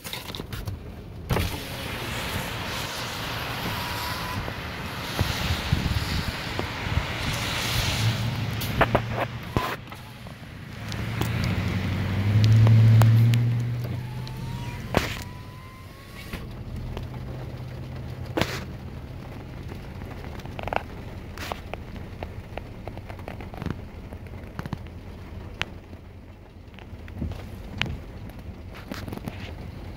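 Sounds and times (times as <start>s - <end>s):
vehicle engine hum: 0.0s - 29.9s
raindrops ticking on car roof: 0.2s - 29.9s.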